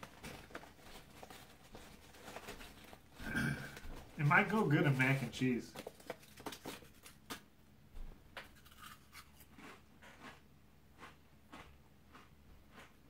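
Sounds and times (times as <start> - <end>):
crisp chip being chewed: 8.4 - 13.0.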